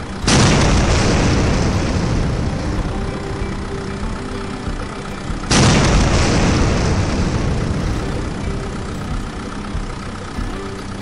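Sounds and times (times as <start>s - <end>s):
engine idling hum: 0.0s - 11.0s
explosion blast: 0.2s - 4.2s, 5.5s - 8.4s.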